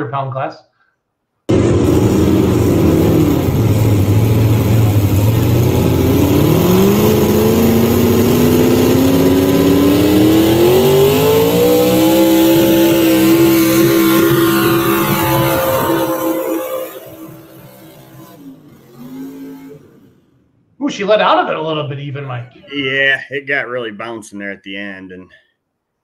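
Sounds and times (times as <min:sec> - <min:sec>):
tractor engine revving: 0:01.5 - 0:20.6.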